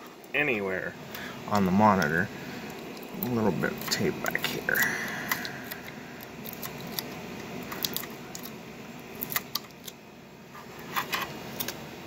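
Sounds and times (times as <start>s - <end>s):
steady low hiss: 0.0s - 12.0s
tape clicks and crinkles: 1.5s - 10.0s.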